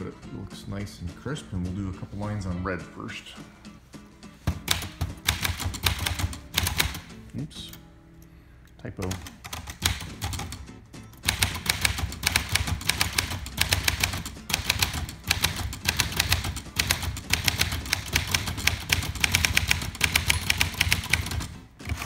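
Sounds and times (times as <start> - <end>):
typewriter keystrokes: 4.6 - 7.1, 9.0 - 10.6, 11.2 - 22.0.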